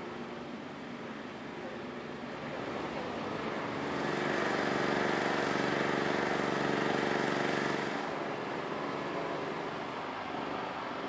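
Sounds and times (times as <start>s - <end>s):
engine running: 2.9s - 11.0s.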